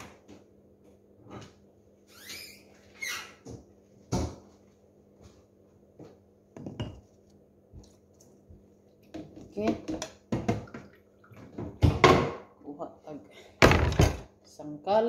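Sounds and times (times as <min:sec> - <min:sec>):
bowls knocking and clattering: 0:06.6 - 0:07.1, 0:09.1 - 0:12.4.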